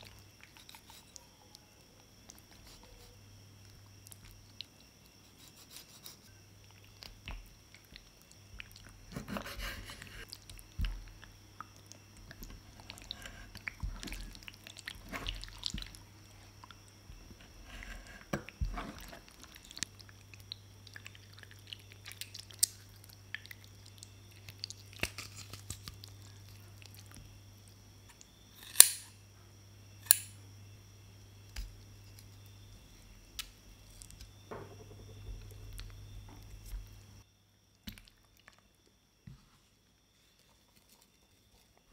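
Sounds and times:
wet sticky squishing of octopus: 0:10.2 - 0:16.8.

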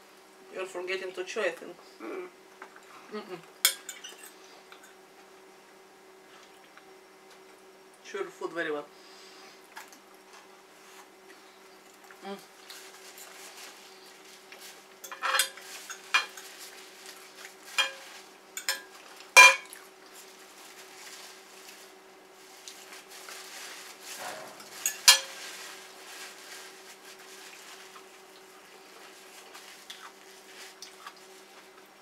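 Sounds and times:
faint steady hum: 0:00.0 - 0:32.0
cutlery clinking on a plate: 0:03.7 - 0:05.0, 0:15.0 - 0:16.4, 0:17.8 - 0:19.7, 0:24.2 - 0:25.4.

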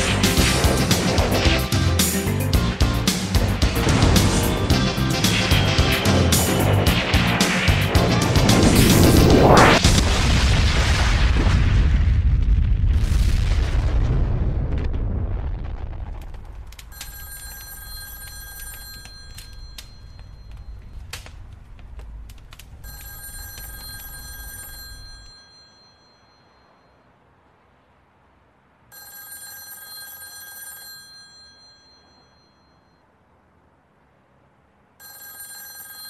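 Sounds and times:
rising whoosh: 0:00.0 - 0:11.5
huge explosion with rumble: 0:00.1 - 0:01.7, 0:03.4 - 0:17.0
telephone ringing: 0:16.9 - 0:20.8, 0:22.8 - 0:27.0, 0:28.9 - 0:33.0, 0:35.0 - 0:36.0.

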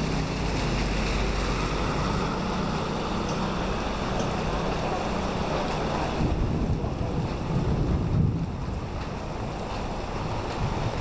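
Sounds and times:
cars passing on wet road: 0:00.0 - 0:11.0
rain wash on street: 0:00.0 - 0:11.0
wind rumbling on microphone: 0:00.0 - 0:11.0.

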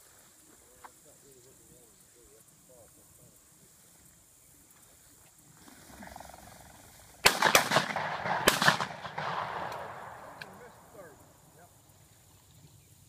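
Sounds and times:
shotgun blasts: 0:07.2 - 0:10.7.

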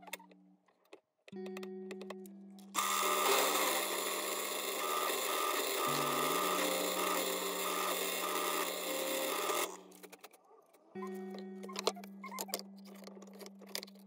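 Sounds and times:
drill bit cutting wood: 0:02.8 - 0:09.8
drill press motor hum: 0:02.8 - 0:10.0.

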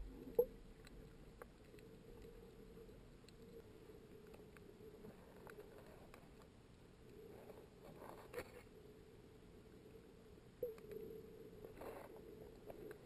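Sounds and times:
faint low underwater hum: 0:00.0 - 0:13.0
small clicks and snaps: 0:00.2 - 0:07.2, 0:10.6 - 0:11.1, 0:11.7 - 0:13.0.

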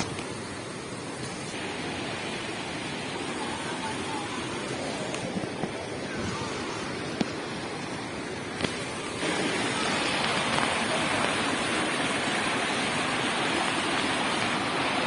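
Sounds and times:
faint voices: 0:00.0 - 0:15.0
stream rushing: 0:00.0 - 0:15.0.

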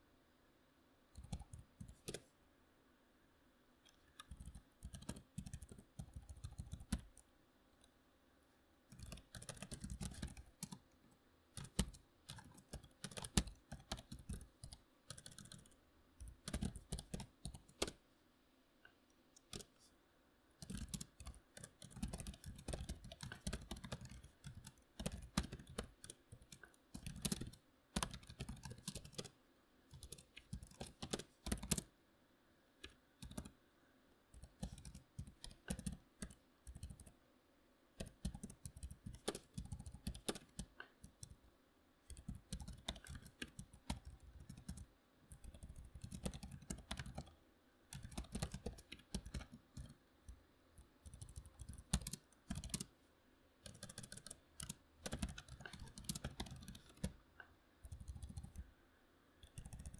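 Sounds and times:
keyboard key clicks: 0:34.4 - 0:37.1, 0:47.9 - 0:49.9, 0:51.0 - 0:52.9, 0:53.6 - 0:57.1.

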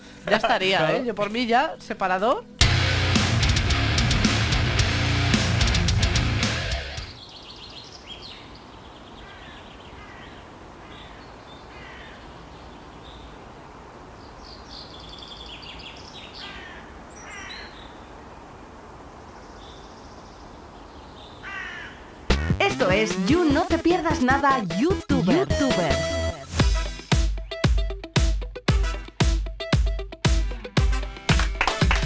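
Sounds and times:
heavy metal music: 0:02.6 - 0:07.1, 0:22.3 - 0:32.0
crows cawing: 0:09.2 - 0:12.3, 0:16.3 - 0:18.0, 0:21.4 - 0:22.3.

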